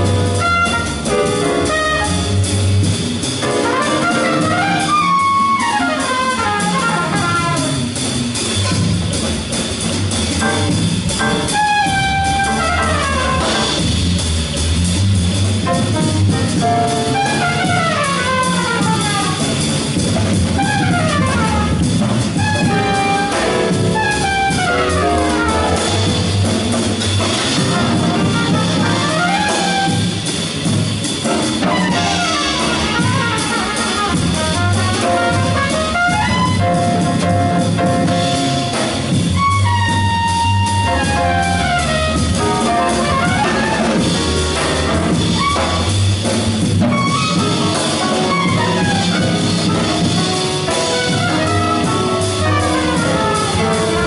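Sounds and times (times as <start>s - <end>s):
trumpet playing fast runs: 0.0s - 2.8s, 3.4s - 9.1s, 11.3s - 13.9s, 15.7s - 19.9s, 20.5s - 30.5s, 31.5s - 46.2s, 46.8s - 54.0s
drum kit: 0.0s - 54.0s
grand piano: 0.0s - 54.0s
upright bass: 0.0s - 54.0s.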